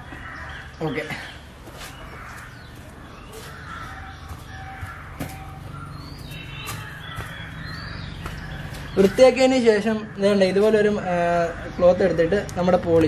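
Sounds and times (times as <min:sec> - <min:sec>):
high bird chirps: 0:00.0 - 0:10.4
crows cawing: 0:00.0 - 0:12.2.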